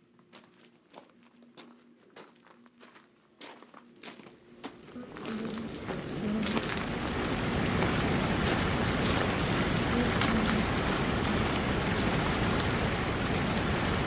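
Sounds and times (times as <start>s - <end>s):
waterfall roaring: 4.9s - 14.0s.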